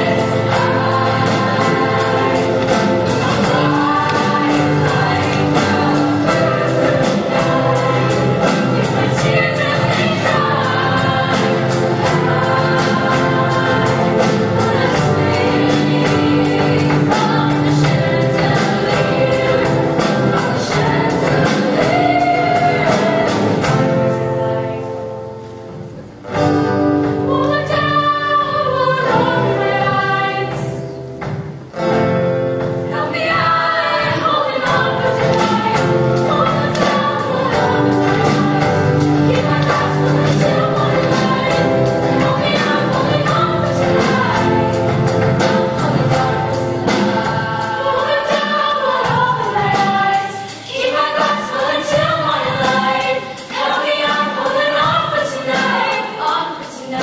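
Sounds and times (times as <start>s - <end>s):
choir singing in harmony: 0.0s - 57.0s
live band with steady beat: 0.0s - 57.0s.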